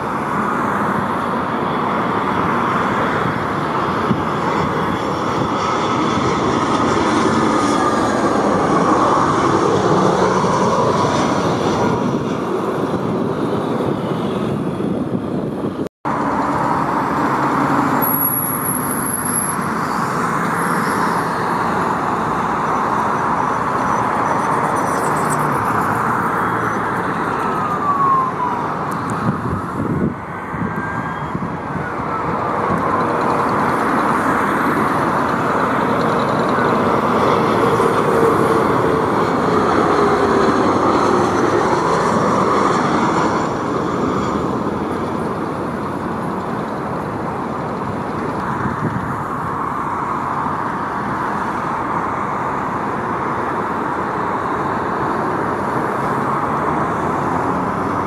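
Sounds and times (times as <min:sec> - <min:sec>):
jet engines rushing: 0:00.0 - 0:58.0
sliding whine tones: 0:22.6 - 0:43.5.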